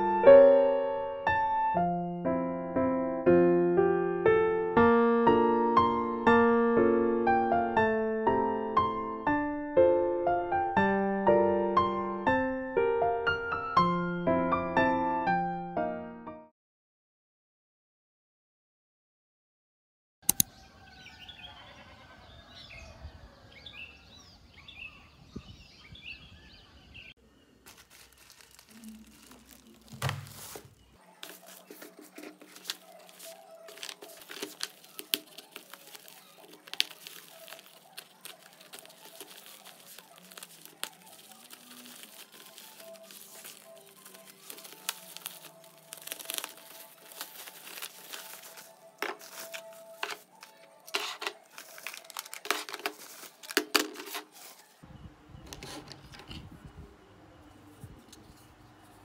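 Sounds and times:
packing tape tearing: 0:27.6 - 0:54.7
plastic mailer bag crinkling: 0:27.6 - 0:54.8.

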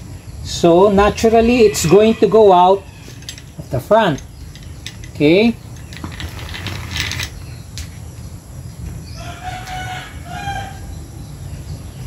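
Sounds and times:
rooster crowing: 0:01.4 - 0:03.2, 0:09.1 - 0:11.0.

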